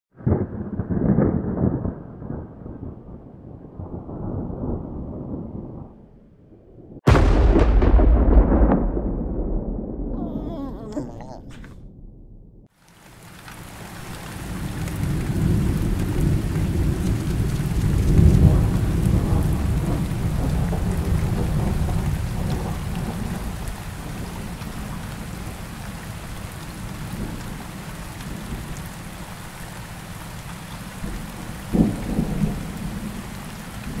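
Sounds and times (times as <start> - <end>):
thunder rumbling: 0.2 - 6.0, 6.7 - 10.2, 13.7 - 24.9
heavy rain: 12.8 - 34.0.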